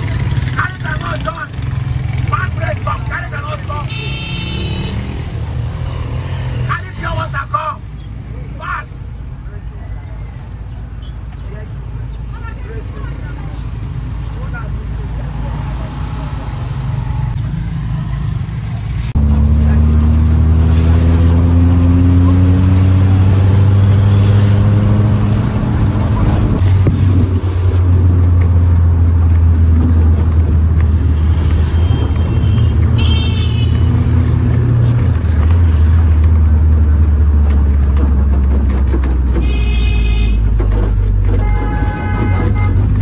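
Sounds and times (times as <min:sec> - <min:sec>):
car engine and road rumble: 0:00.0 - 0:43.0
car horn toots: 0:03.9 - 0:05.1, 0:31.7 - 0:34.0, 0:39.4 - 0:40.6, 0:41.3 - 0:43.0
engine revving: 0:15.4 - 0:32.9.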